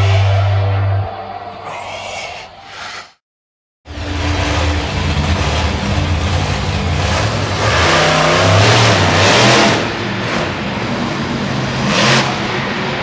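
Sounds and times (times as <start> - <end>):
truck engine revving: 3.9 - 13.0.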